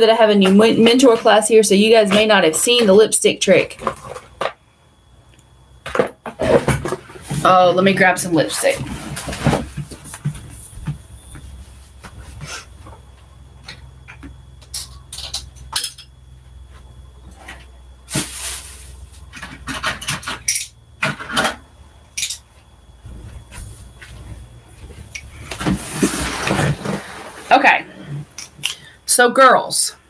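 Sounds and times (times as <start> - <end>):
steady low hum: 3.6 - 29.2
rustling: 23.0 - 28.4.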